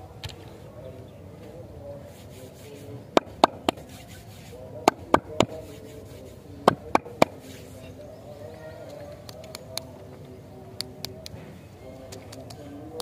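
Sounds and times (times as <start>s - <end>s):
fingertip tapping paper wrappers: 3.1s - 7.6s.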